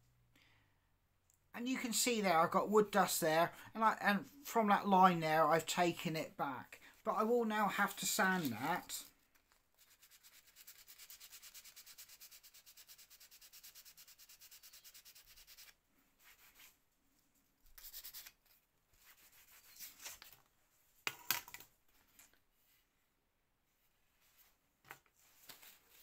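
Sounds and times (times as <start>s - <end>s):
sandpaper rubbing on wood: 9.8s - 16.6s, 17.8s - 18.3s
sharp scrape: 17.8s - 18.4s.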